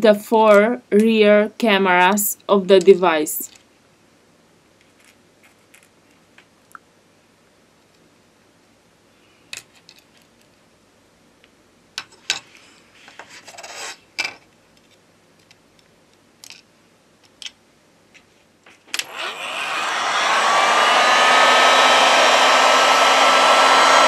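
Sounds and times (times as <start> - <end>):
heat gun blowing: 19.0 - 24.0.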